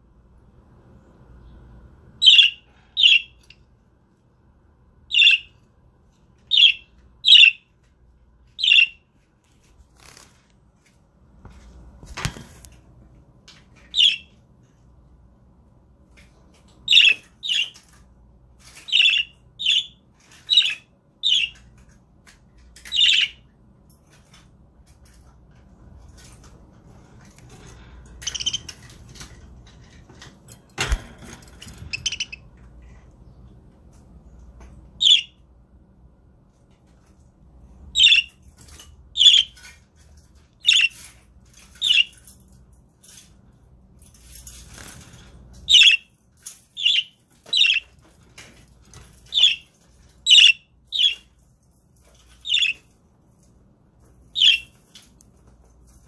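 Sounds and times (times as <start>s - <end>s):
budgerigar chirping: 2.2s - 3.3s, 5.1s - 5.5s, 6.5s - 7.6s, 8.6s - 9.0s, 31.9s - 32.4s, 38.0s - 38.3s, 45.7s - 46.0s, 46.8s - 47.9s, 50.3s - 51.2s, 52.4s - 52.8s, 54.4s - 54.7s.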